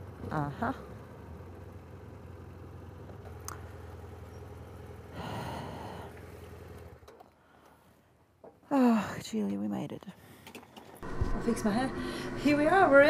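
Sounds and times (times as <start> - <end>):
breathy rush of noise: 11.0 - 13.0
motorcycle engine running: 11.0 - 13.0.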